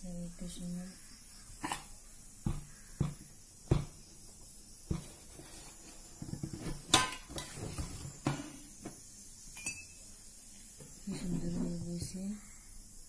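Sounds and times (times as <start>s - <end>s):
metal lid clinks and knocks: 6.2s - 8.6s, 9.5s - 10.0s
metal lid rattling: 6.2s - 8.6s.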